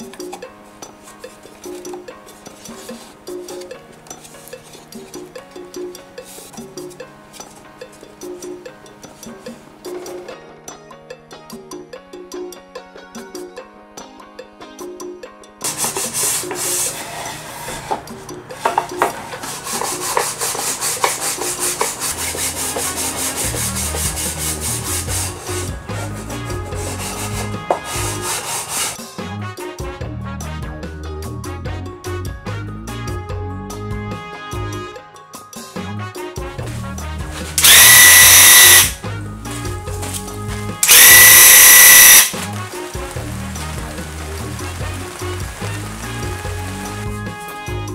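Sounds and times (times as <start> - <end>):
background music: 0.0 - 47.9
sandpaper scrubbing on wood: 15.7 - 18.0, 18.6 - 29.0
power drill whining: 37.6 - 39.0, 40.8 - 42.4.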